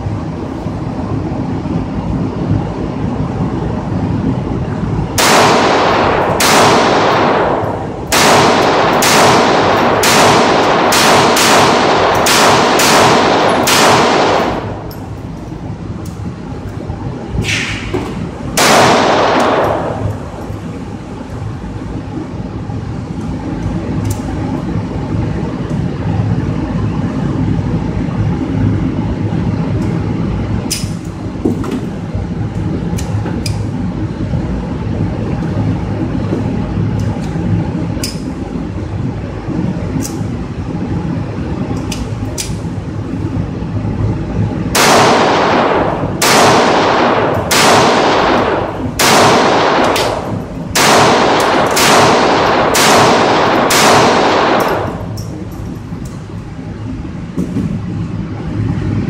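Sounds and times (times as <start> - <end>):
steady hum: 0.0 - 59.0
pistol shots indoors: 5.1 - 15.2, 17.4 - 20.7, 44.7 - 55.7
distant gunshots from other lanes: 5.2 - 14.8, 18.6 - 20.2, 44.8 - 55.1.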